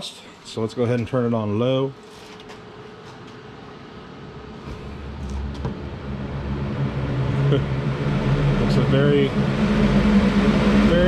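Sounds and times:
fan motor hum: 0.0s - 11.0s.

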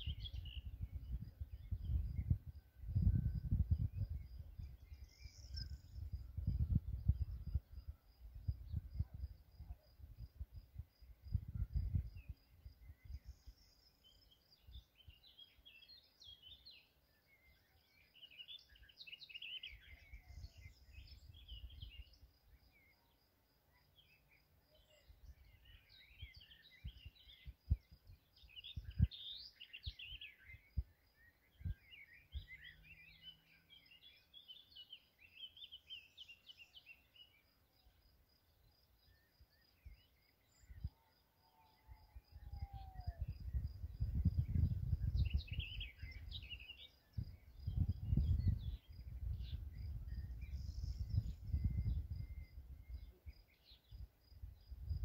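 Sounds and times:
wind rumbling on microphone: 0.0s - 15.2s, 19.7s - 22.2s, 25.2s - 32.6s, 39.8s - 41.0s, 41.8s - 55.0s
songbirds chirping: 0.0s - 55.0s.

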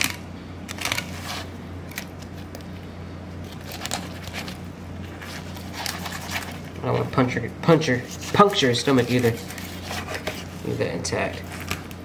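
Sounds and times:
steady low hum: 0.0s - 12.0s
knife scraping fish bones: 9.1s - 10.6s.

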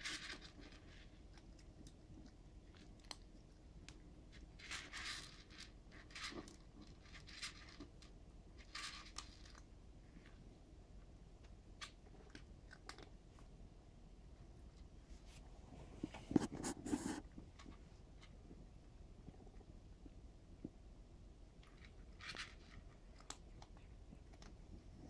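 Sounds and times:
cat crunching dry kibble: 0.0s - 10.4s, 11.4s - 13.4s, 21.6s - 24.8s.

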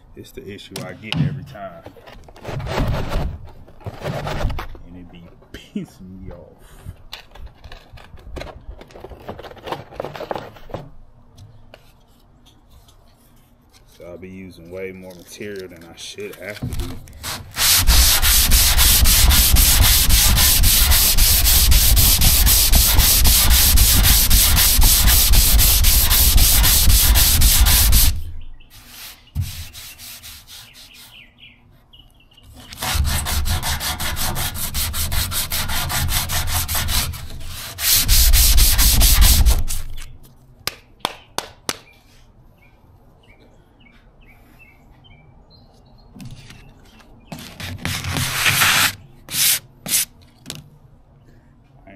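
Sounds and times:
power sander on car bodywork: 17.6s - 28.2s.

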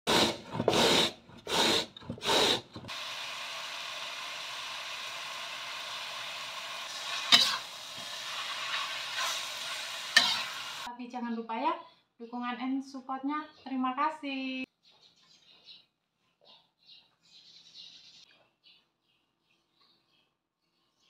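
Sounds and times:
papaya sizzling in a wok: 2.2s - 10.9s
metal spatula scraping pan: 7.0s - 9.5s, 10.1s - 10.9s.

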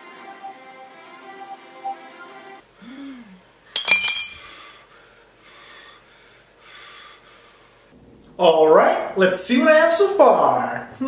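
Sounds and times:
background music: 0.0s - 2.6s
glass bottles clinking: 3.8s - 4.4s
soft breaths: 4.4s - 8.0s.

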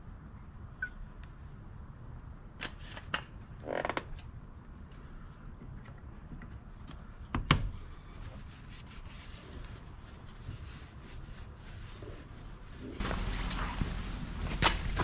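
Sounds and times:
handling noises: 12.9s - 15.0s.

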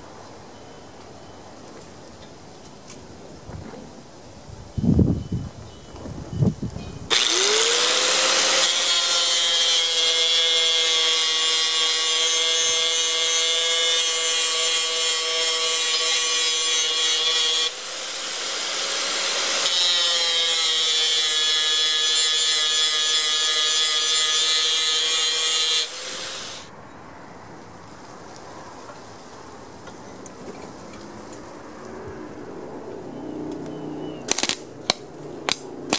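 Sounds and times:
angle grinder cutting steel: 7.1s - 26.7s.

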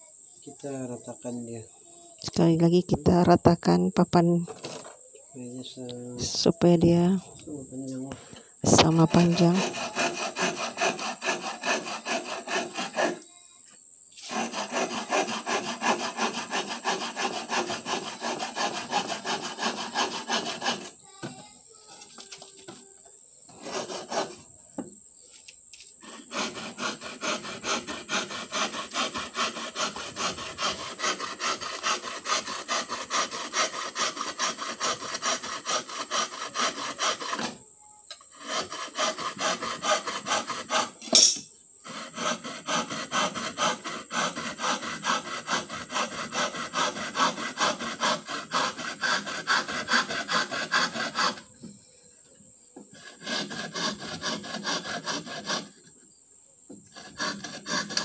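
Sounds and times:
hand saw cutting wood: 8.7s - 13.3s, 14.2s - 21.3s, 23.5s - 24.5s, 26.0s - 37.6s, 38.3s - 41.2s, 41.8s - 51.5s, 52.9s - 55.9s, 56.8s - 58.0s.

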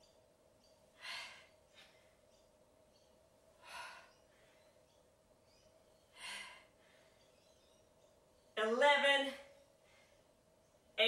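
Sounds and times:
faint steady hum: 0.0s - 11.0s
woman breathing: 0.9s - 2.3s, 3.5s - 5.0s, 6.0s - 7.4s.

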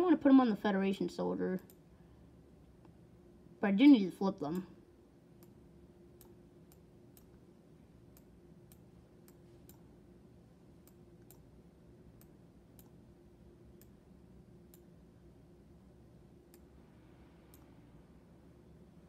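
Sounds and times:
faint low hum: 0.0s - 19.0s
computer mouse clicking: 8.1s - 9.9s, 12.2s - 13.0s, 17.4s - 17.8s.

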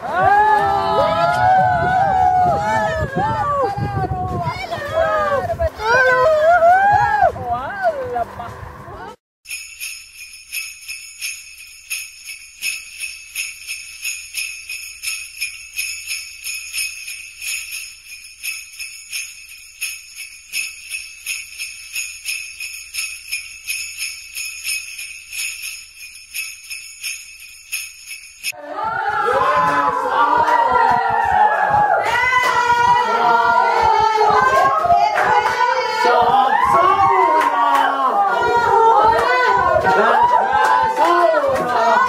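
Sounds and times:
sleigh bells jingling: 9.4s - 28.6s.

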